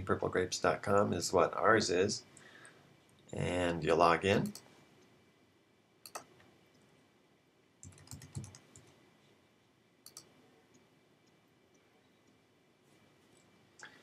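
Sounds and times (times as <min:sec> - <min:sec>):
computer mouse clicks: 0:06.0 - 0:06.5, 0:07.8 - 0:09.0, 0:10.0 - 0:12.4
keyboard keystrokes: 0:07.8 - 0:08.9.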